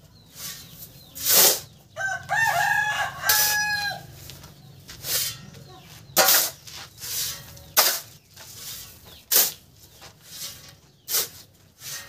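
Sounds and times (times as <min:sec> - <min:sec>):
shovel scraping into sand: 0:00.3 - 0:01.8, 0:03.3 - 0:03.6, 0:05.0 - 0:05.5, 0:06.2 - 0:12.0
sand sliding off shovel: 0:00.4 - 0:01.7, 0:10.2 - 0:12.0.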